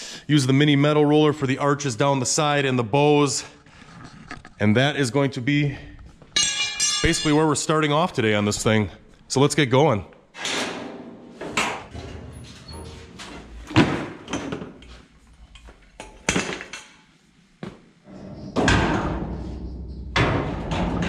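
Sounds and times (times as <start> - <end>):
steel jack parts clanking: 6.4 - 7.4.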